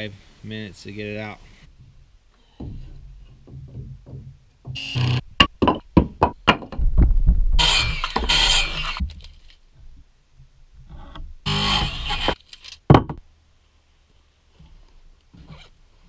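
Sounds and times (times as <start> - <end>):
wood scraping and rustling: 1.4 - 12.9
wood blocks knocking on deck: 2.6 - 7.3, 12.9 - 13.2.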